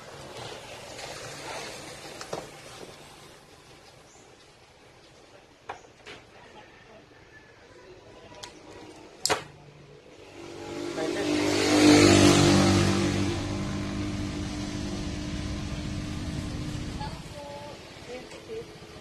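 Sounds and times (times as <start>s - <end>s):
vehicle engine passing by: 9.8s - 19.0s.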